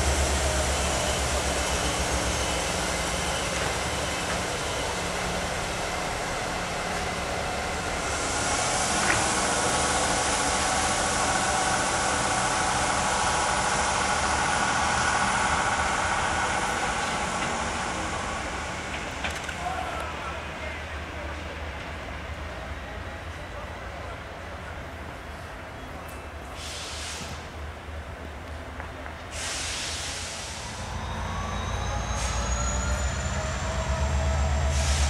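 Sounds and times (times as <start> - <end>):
hiss: 0.0 - 18.9, 26.5 - 27.6, 29.2 - 31.2, 32.0 - 35.0
diesel train engine running: 0.0 - 35.0.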